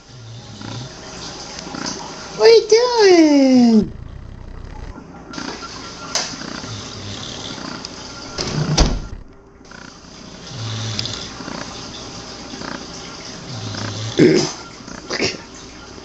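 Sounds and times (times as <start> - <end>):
dog grunting: 6.4 - 7.9, 12.6 - 15.3.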